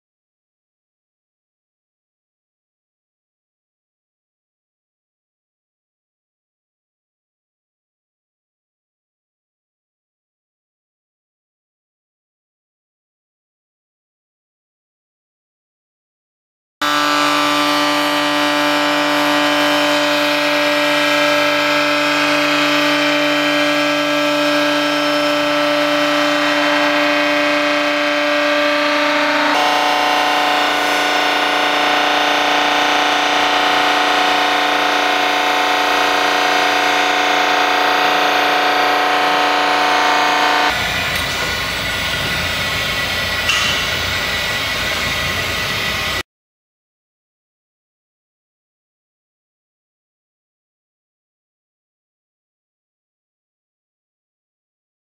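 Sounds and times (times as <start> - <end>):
spindle whining and grinding metal: 16.8 - 46.2
metal scrape: 22.2 - 46.2.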